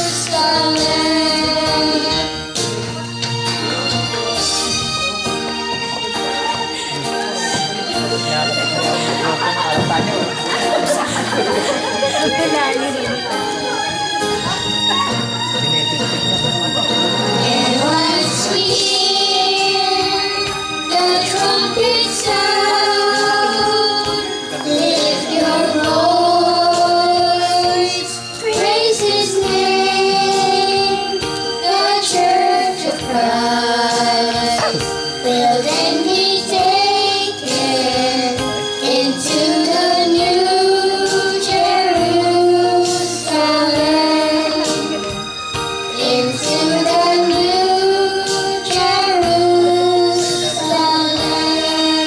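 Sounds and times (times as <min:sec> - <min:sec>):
boys singing into microphones: 0:00.0 - 0:02.7, 0:16.7 - 0:45.3, 0:45.9 - 0:52.0
recorded musical backing track: 0:00.0 - 0:52.0.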